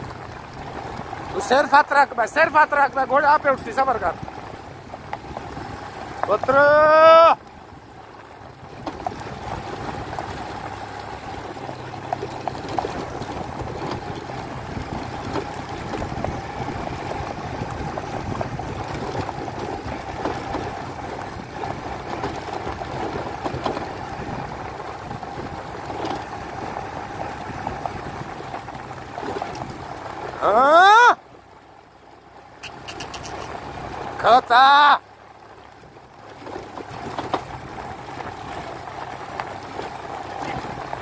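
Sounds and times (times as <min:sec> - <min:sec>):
hoofbeats on dirt track: 0:00.0 - 0:30.4, 0:31.2 - 0:41.0
vehicle engine running: 0:00.0 - 0:41.0
wind noise: 0:04.1 - 0:07.3, 0:11.3 - 0:29.9.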